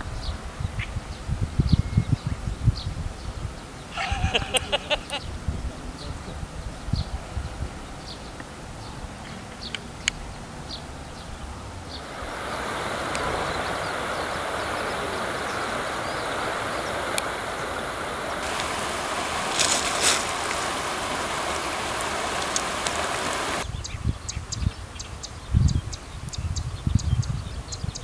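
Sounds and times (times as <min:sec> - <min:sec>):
river water rushing over stones: 0:11.9 - 0:23.6.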